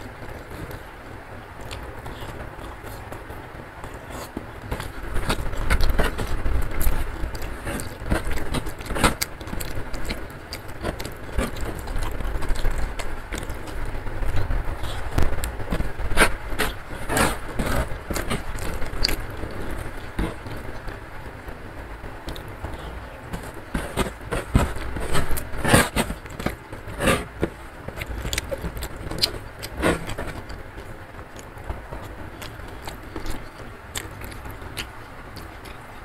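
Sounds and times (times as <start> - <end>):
chewing and mouth smacks: 1.6 - 3.2, 3.8 - 15.9, 17.7 - 20.9, 27.9 - 35.9
fingers scraping grains on wood: 22.3 - 30.6.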